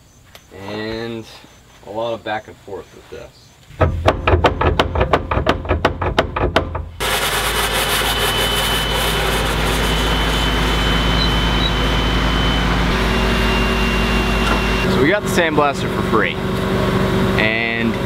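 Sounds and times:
rapid metallic knocking: 3.7s - 7.0s
sandblaster hissing: 7.0s - 12.0s
low engine drone: 7.0s - 18.0s.

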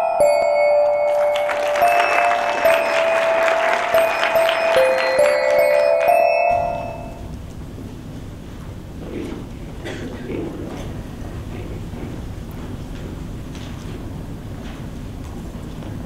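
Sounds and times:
bell-like mallet percussion jingle: 0.0s - 7.3s
low hall room noise: 0.0s - 16.0s
audience applause: 1.1s - 7.0s.

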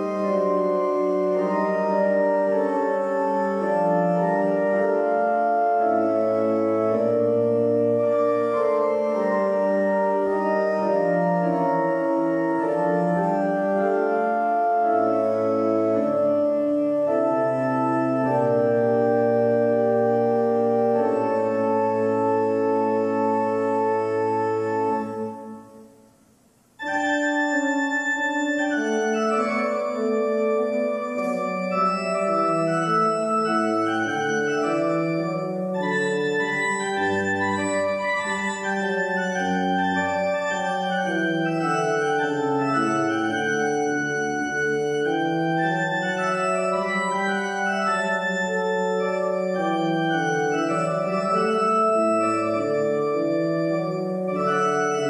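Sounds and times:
church organ playing chords: 0.0s - 26.0s, 26.8s - 55.0s.

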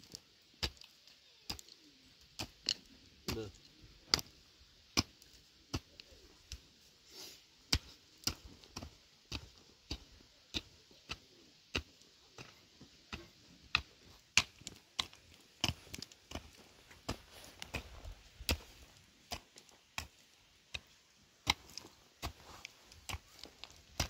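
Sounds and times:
hand tool chopping: 20.8s - 24.0s.

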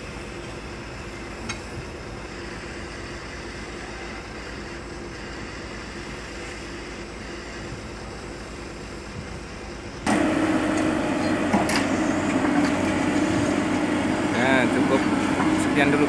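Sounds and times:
excavator diesel engine running: 0.0s - 16.0s
truck engine idling: 0.0s - 16.0s.

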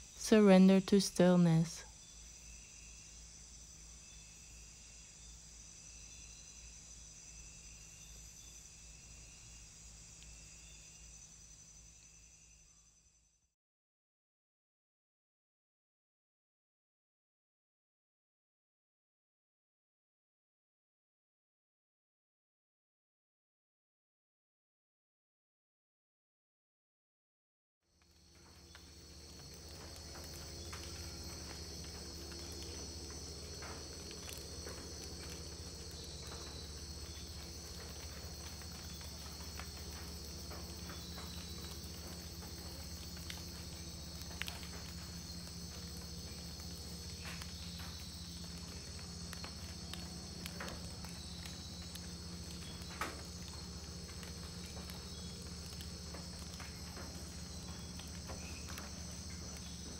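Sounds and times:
low steady hum: 0.0s - 12.8s, 28.1s - 59.9s
insect chorus buzzing and trilling: 0.0s - 13.5s, 27.9s - 59.9s.

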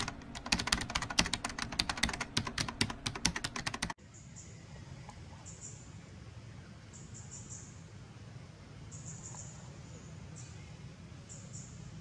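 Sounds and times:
keyboard typing clicks: 0.0s - 4.0s
faint outdoor ambience: 0.0s - 12.0s.

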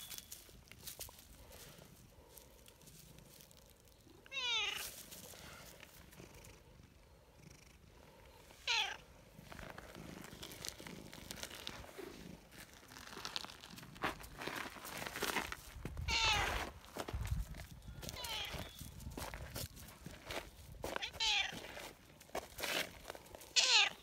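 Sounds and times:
cat meowing: 4.3s - 4.8s, 8.6s - 9.0s, 16.0s - 16.5s, 18.1s - 18.8s, 21.0s - 21.6s, 23.6s - 24.0s
cat purring softly: 5.3s - 14.4s.

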